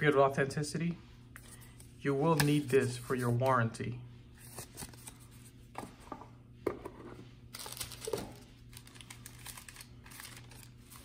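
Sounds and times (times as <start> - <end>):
paper crinkling and rustling: 4.4 - 5.6, 7.5 - 11.0.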